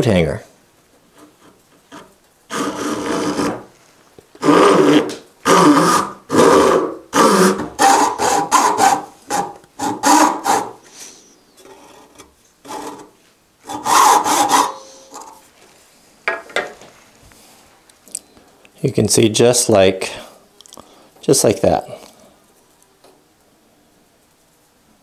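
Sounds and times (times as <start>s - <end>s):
handsaw cutting wood: 1.2s - 3.7s, 4.4s - 10.8s, 11.7s - 15.2s.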